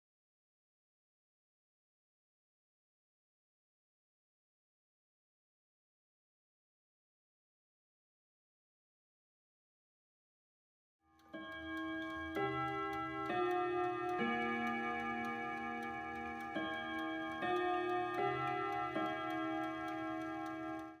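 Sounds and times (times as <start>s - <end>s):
clock chime melody: 11.2s - 21.0s
clock ticking: 11.2s - 21.0s.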